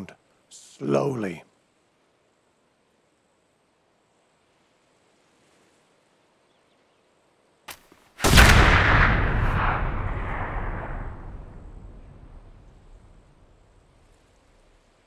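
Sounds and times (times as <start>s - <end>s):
gunshot with echo: 8.2s - 11.6s.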